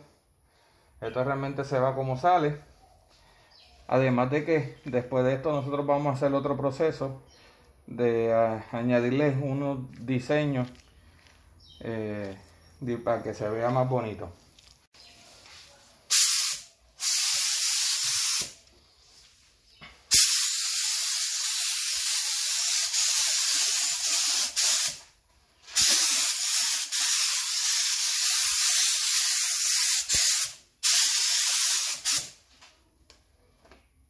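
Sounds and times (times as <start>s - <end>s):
spray gun hissing: 16.1s - 18.6s, 20.1s - 25.1s, 25.7s - 32.4s.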